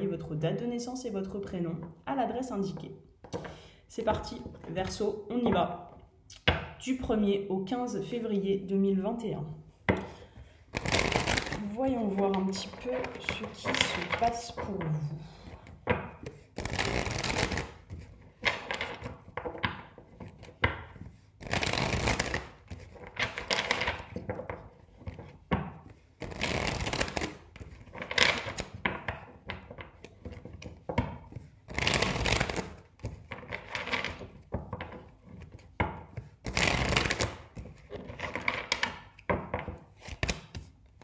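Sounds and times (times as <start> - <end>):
cards being riffle-shuffled: 10.0 - 41.0.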